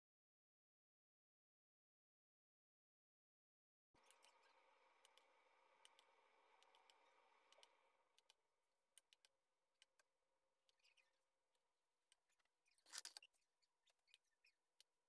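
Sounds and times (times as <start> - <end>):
faint small clicks: 4.0 - 8.4.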